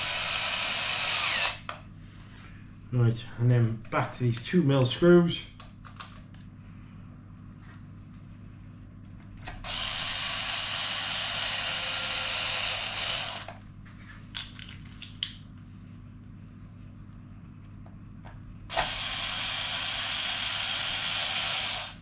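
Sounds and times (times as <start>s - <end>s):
electric screwdriver running: 0.0s - 1.7s, 9.6s - 13.5s, 18.7s - 22.0s.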